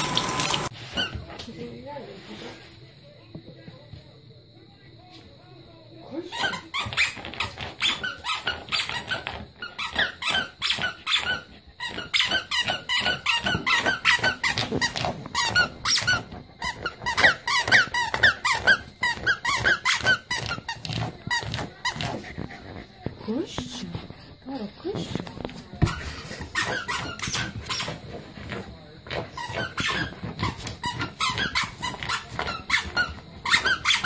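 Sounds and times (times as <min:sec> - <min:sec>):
rubber squeaky toy squeaking: 0:06.3 - 0:22.3, 0:25.8 - 0:28.0, 0:29.3 - 0:34.0.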